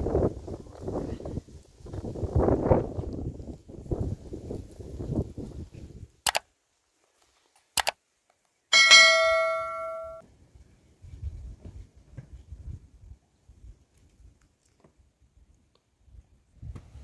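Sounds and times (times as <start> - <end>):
short clicks: 6.2 - 6.4, 7.8 - 8.0
bell-like ding: 8.7 - 10.2.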